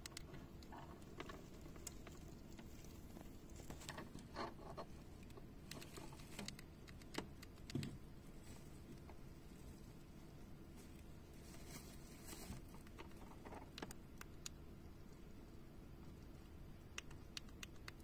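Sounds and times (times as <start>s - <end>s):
hamster rustling in wood shavings: 0.8s - 6.6s, 8.2s - 13.5s.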